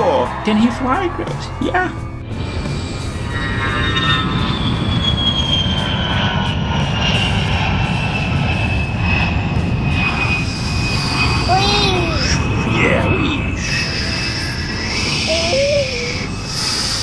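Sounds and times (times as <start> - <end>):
jet engine rumble and whine: 0.0 - 17.0.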